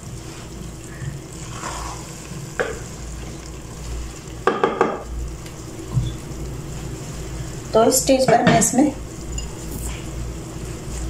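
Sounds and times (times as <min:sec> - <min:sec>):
food sizzling in a pan: 0:00.0 - 0:11.0
spatula knocking against pan: 0:04.4 - 0:05.1.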